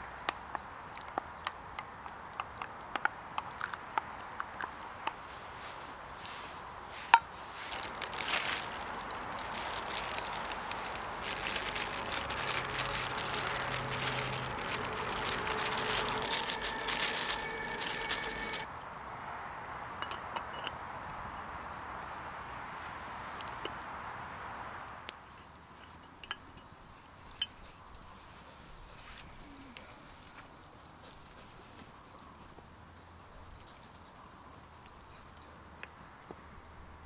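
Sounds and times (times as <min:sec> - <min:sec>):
dried vegetables rattling: 0:06.9 - 0:18.7
plastic bag crinkling: 0:07.4 - 0:18.7.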